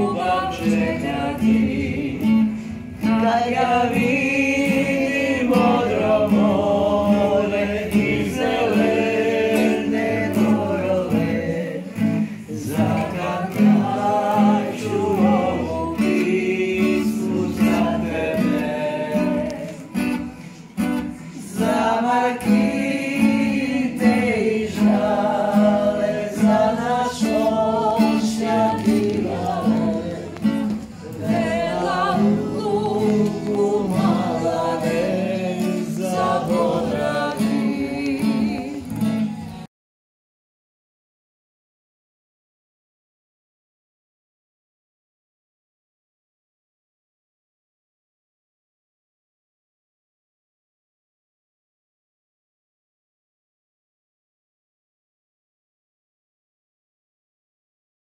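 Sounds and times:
acoustic guitar: 0.0s - 39.7s
people singing together: 0.0s - 39.7s.

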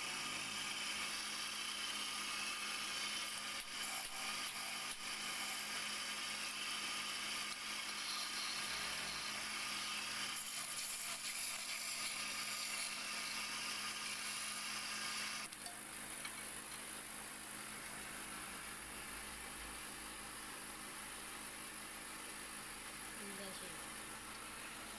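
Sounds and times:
chisel cutting wood hiss: 0.0s - 15.5s
lathe motor hum: 0.0s - 24.9s.

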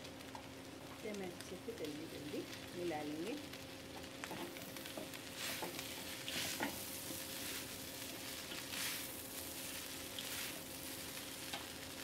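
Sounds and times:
noodles sizzling in a wok: 0.0s - 12.0s.

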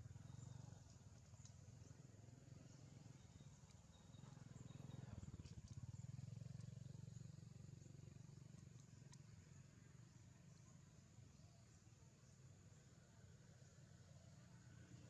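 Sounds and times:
faint high ticks: 0.1s - 11.0s.

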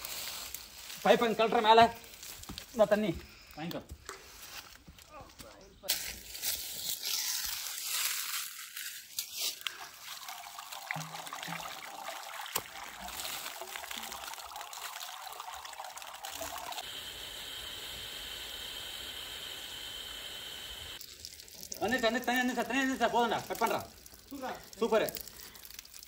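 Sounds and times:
water pouring and splashing: 6.0s - 16.9s, 21.0s - 26.0s.

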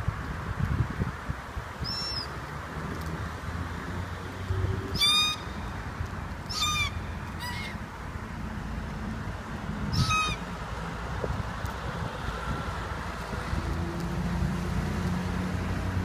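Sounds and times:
cockatoos calling: 4.9s - 5.8s, 6.5s - 7.8s, 9.9s - 10.4s.

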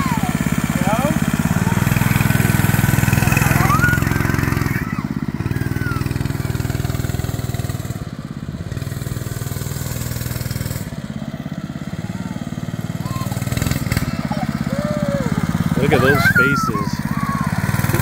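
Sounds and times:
small mini bike engine running: 0.0s - 18.0s.

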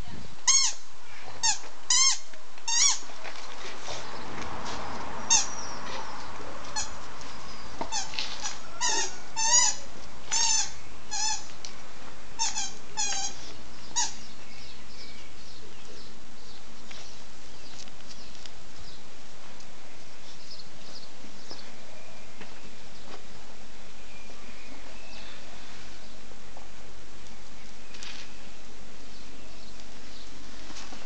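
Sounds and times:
small dog whining: 8.8s - 9.8s.

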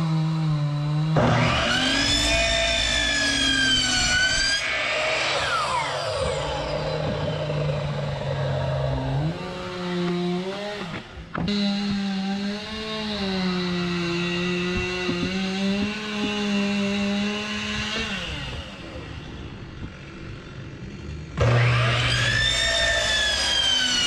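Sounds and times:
miter saw cutting plank: 0.0s - 24.0s
machine droning hum: 1.1s - 10.5s.

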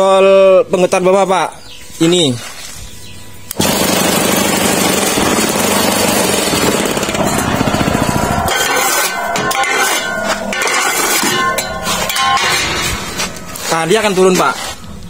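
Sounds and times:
vibrator motor loud rapid buzz: 3.6s - 9.1s
ringing metallic clinks: 7.2s - 13.6s.

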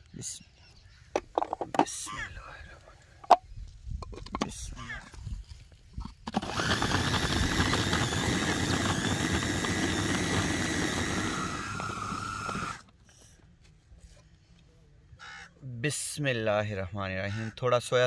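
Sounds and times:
food processor motor whining: 6.3s - 12.8s.

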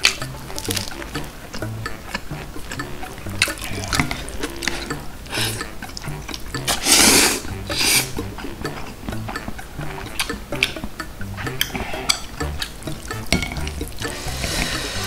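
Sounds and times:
mouth and chopstick clicks: 0.0s - 14.1s
wet noodle slurping: 2.7s - 9.0s, 13.6s - 15.0s.

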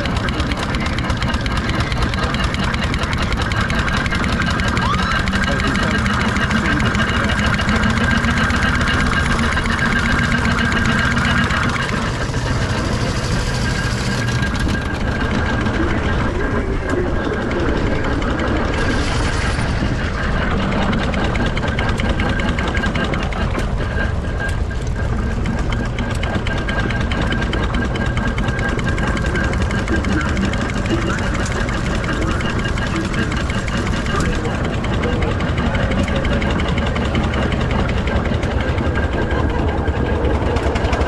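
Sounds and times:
steam engine clattering: 0.0s - 41.0s.

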